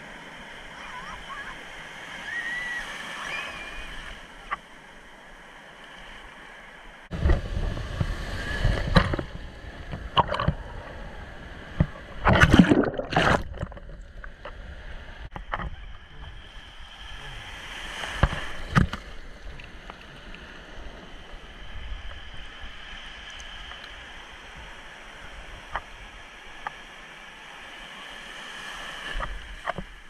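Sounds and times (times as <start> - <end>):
surf washing in shallows: 0.0 - 30.0
water splashing against microphone: 11.7 - 14.4.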